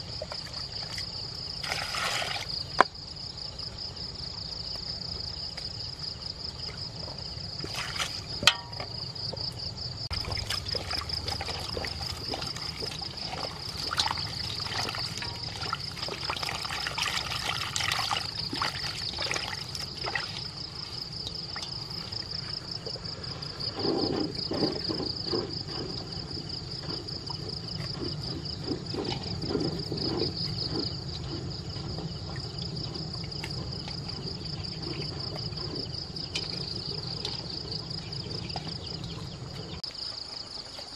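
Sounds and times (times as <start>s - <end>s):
small water splashes: 0.0s - 2.8s, 7.6s - 8.6s, 10.1s - 23.8s
hands sloshing in water: 0.2s - 2.6s, 7.6s - 8.5s, 10.1s - 22.7s.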